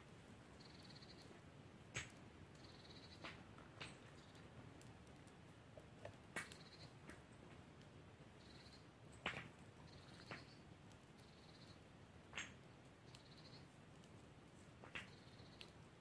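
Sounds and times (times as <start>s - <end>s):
campfire crackling: 0.0s - 16.0s
fire pops: 1.9s - 8.0s, 9.1s - 11.1s, 12.2s - 15.9s.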